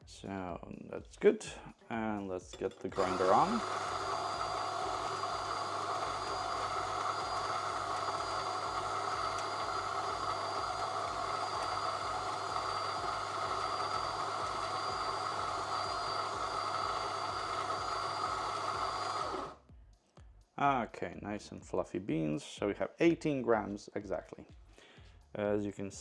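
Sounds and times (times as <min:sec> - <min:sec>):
electric coffee grinder: 0:03.0 - 0:19.6.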